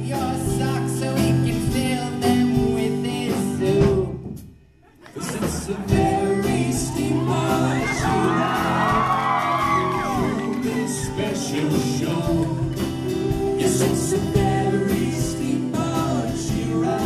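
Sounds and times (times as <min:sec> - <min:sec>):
live band playing: 0:00.0 - 0:04.5, 0:05.2 - 0:17.0.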